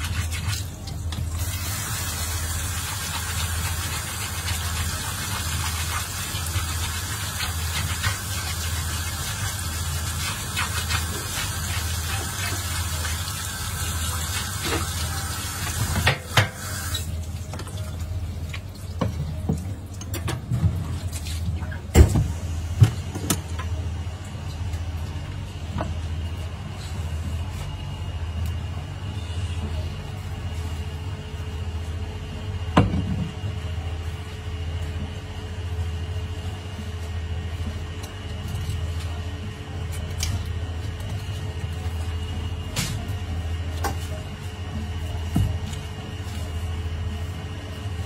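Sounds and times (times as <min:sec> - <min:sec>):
tap water running in sink: 0:00.0 - 0:21.4
steady low hum: 0:17.1 - 0:48.0.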